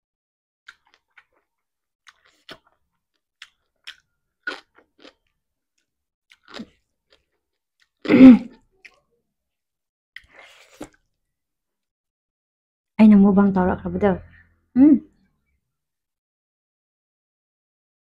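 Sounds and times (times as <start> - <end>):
chewing and crunching food: 0.7 - 9.2, 10.2 - 11.3.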